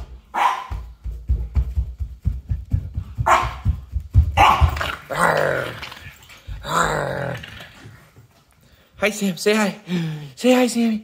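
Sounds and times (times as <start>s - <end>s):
rapid low thuds: 0.0s - 5.0s
dog barking: 0.3s - 0.9s, 3.2s - 4.9s.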